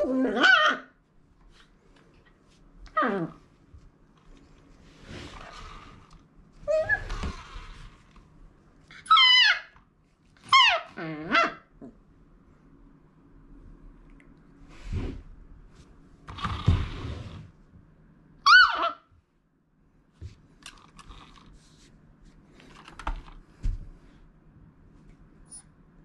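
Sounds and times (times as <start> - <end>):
puppy whine: 0.0 - 1.0, 2.9 - 3.4, 6.6 - 7.6, 8.9 - 9.8, 10.4 - 11.9, 18.5 - 19.1.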